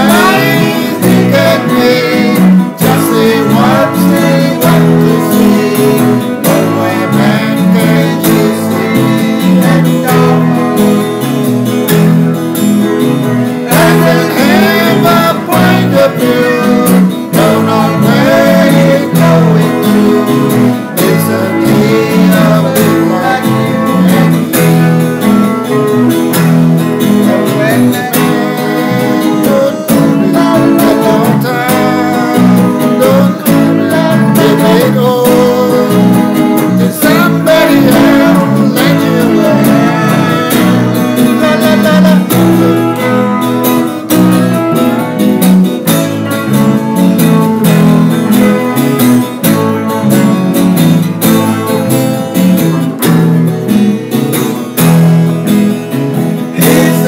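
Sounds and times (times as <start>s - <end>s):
sung vocals: 0.0s - 11.4s, 13.1s - 45.3s, 56.2s - 57.0s
bass guitar: 0.0s - 57.0s
electric guitar: 0.0s - 57.0s
strummed acoustic guitar: 0.0s - 57.0s.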